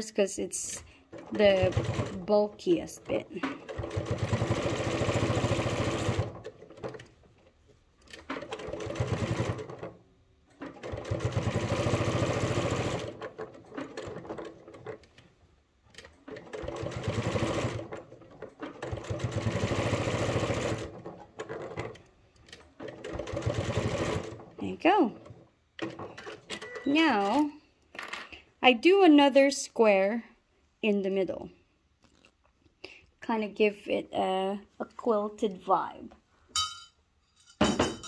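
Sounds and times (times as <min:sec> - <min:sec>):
sewing machine stitching: 0:01.0 - 0:15.3, 0:15.9 - 0:27.4.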